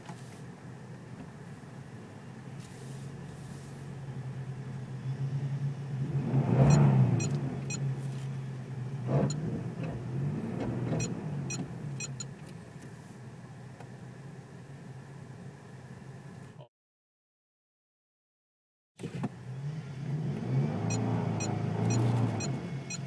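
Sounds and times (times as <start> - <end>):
steady engine hum: 0.0 - 16.7, 19.0 - 23.0
engine revving under strain: 5.2 - 12.2, 19.0 - 23.0.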